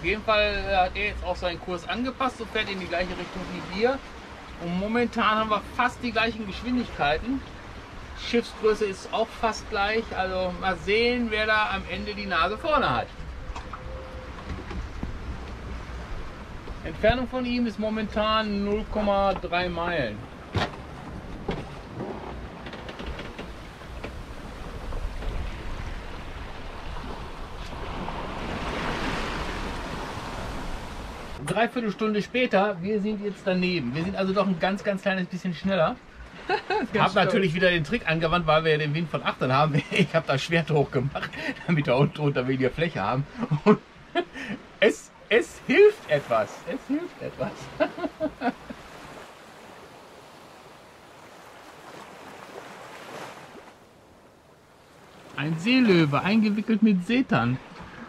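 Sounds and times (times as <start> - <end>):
bow wave rushing along hull: 0.0 - 32.0, 41.1 - 58.0
wind rumbling on microphone: 20.2 - 31.5.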